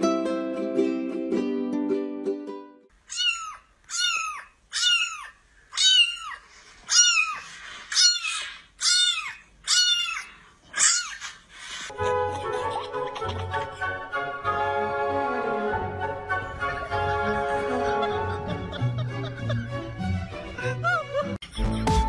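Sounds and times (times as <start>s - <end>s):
ukulele music: 0.0s - 2.9s, 11.9s - 22.0s
kitten meowing: 3.1s - 11.3s.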